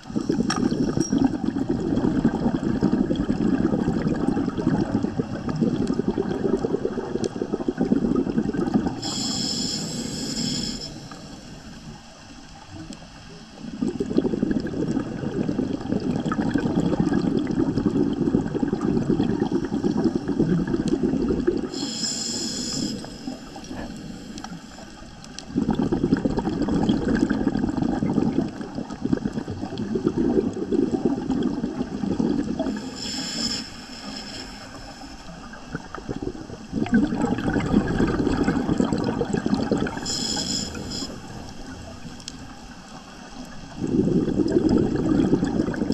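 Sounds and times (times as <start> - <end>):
exhaled air bubbling: 0.0 - 45.9
regulator inhalation hiss: 9.0 - 12.3, 21.7 - 25.1, 32.7 - 35.5, 39.9 - 42.7.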